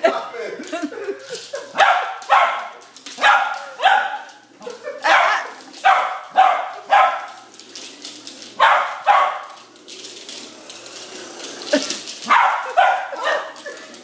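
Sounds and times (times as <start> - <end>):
small dog barking: 1.8 - 4.3, 5.0 - 7.3, 8.6 - 9.6, 12.3 - 13.6.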